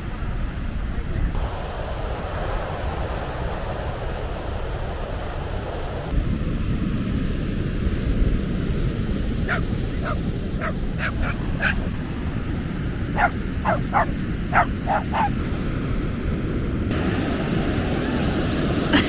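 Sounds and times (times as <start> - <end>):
steady low rumble: 0.0 - 19.0
dog barking: 9.5 - 11.8, 13.2 - 15.4.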